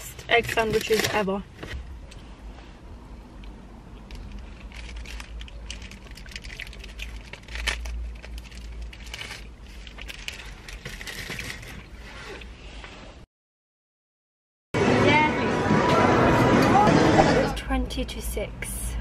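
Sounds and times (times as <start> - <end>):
sandwich wrapping crinkling: 4.0 - 11.9.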